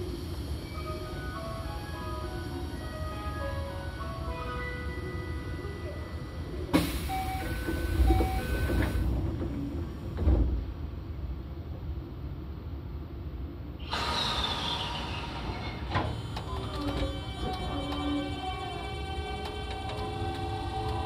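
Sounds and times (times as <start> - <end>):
train running noise with whine: 0.0 - 21.0.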